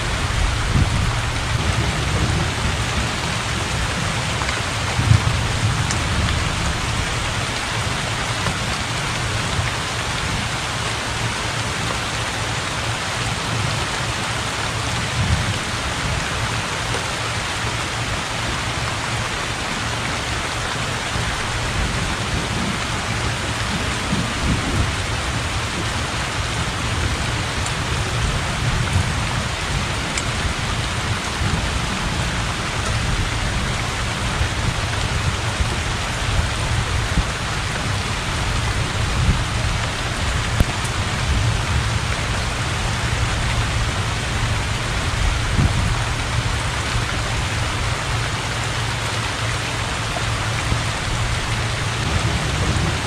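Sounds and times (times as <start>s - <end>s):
low rolls of thunder: 0.0s - 7.4s, 50.7s - 53.0s
heavy rain on water: 0.0s - 53.0s.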